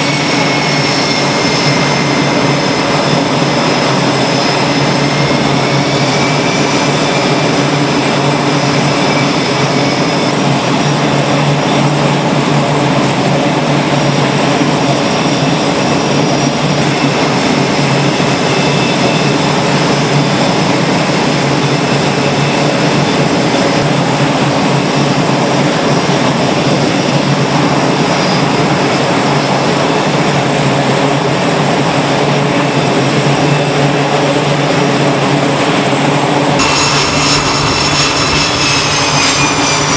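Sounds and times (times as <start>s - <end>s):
jet engines running: 0.0s - 39.9s
steady high tones: 36.6s - 39.9s.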